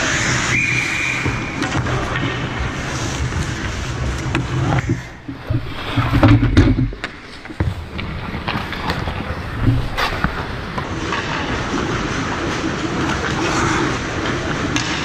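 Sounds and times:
skates scraping ice: 0:00.0 - 0:15.0
loud knocks and thumps: 0:04.7 - 0:10.5.

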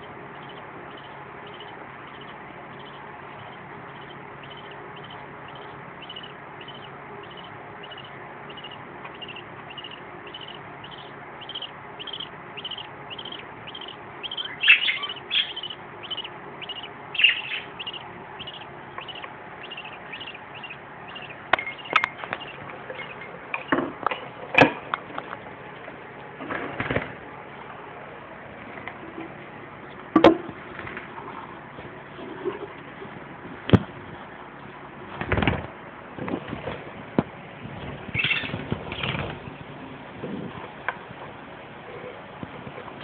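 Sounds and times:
chicks chirping: 0:00.0 - 0:23.8, 0:37.8 - 0:39.7.

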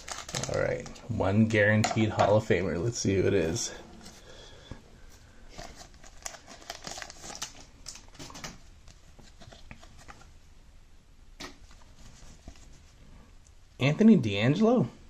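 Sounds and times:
cards being leafed through: 0:00.0 - 0:01.0, 0:05.6 - 0:10.3
plastic wrapper crinkling and tearing: 0:00.0 - 0:01.1, 0:05.5 - 0:10.2.

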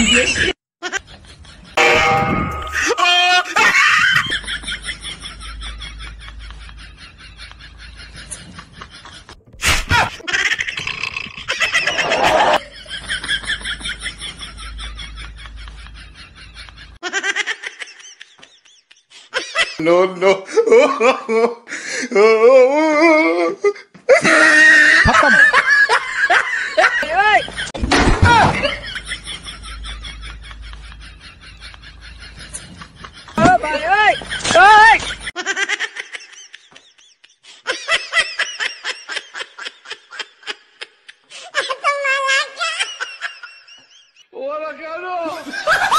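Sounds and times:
man yelling: 0:02.8 - 0:03.6, 0:33.4 - 0:35.0
person laughing: 0:09.0 - 0:27.6.

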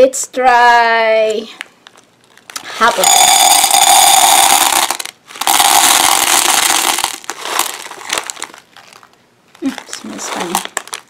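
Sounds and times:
wax beads pouring into metal pot: 0:02.6 - 0:09.0
single beads clicking: 0:03.0 - 0:07.3.

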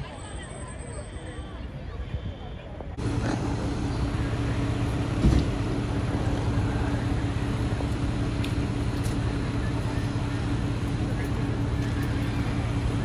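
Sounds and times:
diesel engine idling: 0:03.0 - 0:13.0
thump: 0:05.2 - 0:05.6.

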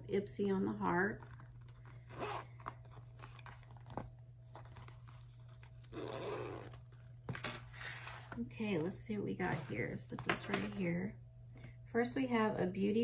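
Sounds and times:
low steady hum: 0:00.0 - 0:13.0
vinyl bag crinkling: 0:00.2 - 0:08.4.

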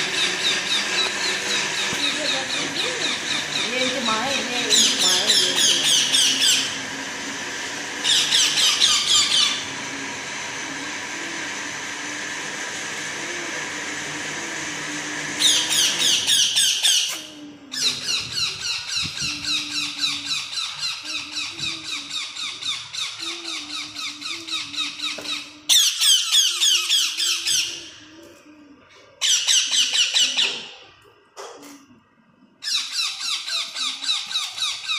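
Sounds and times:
baby parakeets squeaky begging calls: 0:00.0 - 0:06.8, 0:08.0 - 0:09.7, 0:15.4 - 0:28.0, 0:32.6 - 0:34.9.

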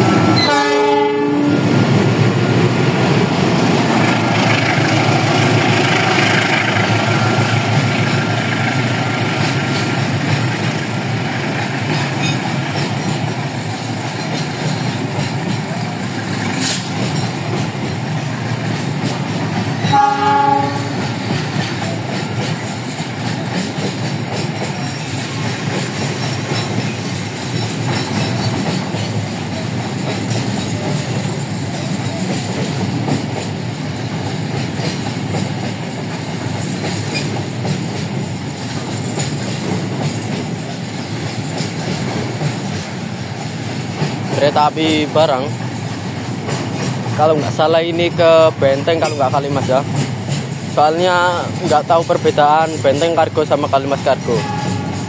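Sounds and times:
train wheels rumbling on rails: 0:00.0 - 0:55.0
train horn: 0:00.3 - 0:01.7, 0:19.9 - 0:21.1, 0:54.3 - 0:55.0.

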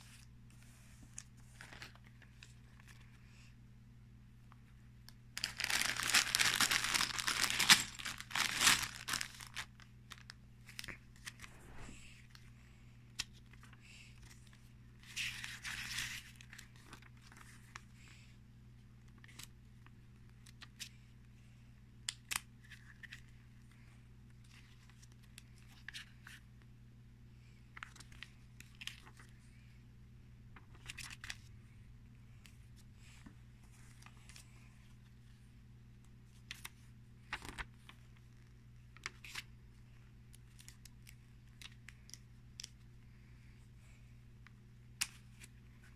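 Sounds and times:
plastic bags crinkling: 0:05.4 - 0:10.3
page turns: 0:10.6 - 0:12.1, 0:30.6 - 0:31.5, 0:36.3 - 0:39.5.

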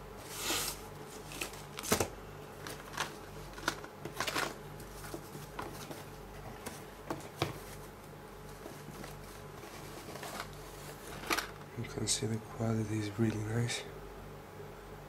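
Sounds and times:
faint low hum: 0:00.0 - 0:15.0
packaging rustling: 0:00.2 - 0:11.7.

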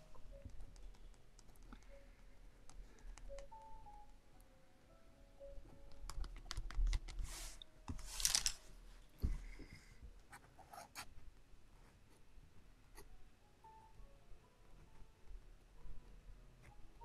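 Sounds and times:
paintbrush clicks and taps: 0:00.3 - 0:01.9, 0:05.9 - 0:07.3
brush scratchy swishes on paper: 0:07.2 - 0:08.2.

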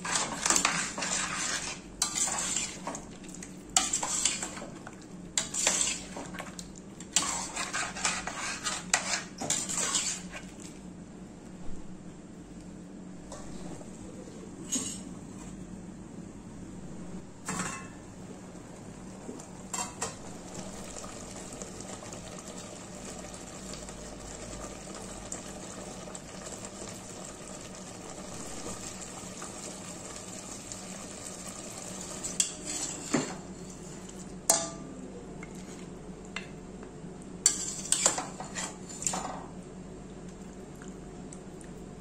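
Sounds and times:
ladle scraping a pot: 0:00.0 - 0:03.0, 0:03.8 - 0:04.7, 0:05.4 - 0:06.4, 0:07.1 - 0:10.6, 0:14.6 - 0:15.1, 0:32.2 - 0:34.7, 0:37.5 - 0:39.3
curry sizzling in a pot: 0:00.0 - 0:10.8, 0:19.0 - 0:34.9, 0:37.4 - 0:39.5.

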